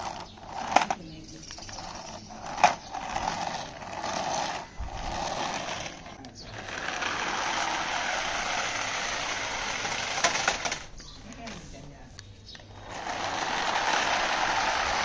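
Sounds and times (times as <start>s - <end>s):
toy car motor whirring: 0.0s - 11.0s, 12.6s - 15.0s.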